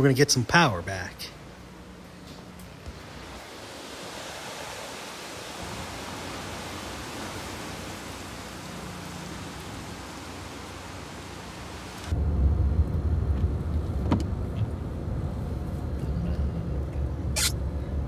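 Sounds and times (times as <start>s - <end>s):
steady hiss: 0.0s - 12.2s
car driving on wet roads: 2.9s - 12.1s.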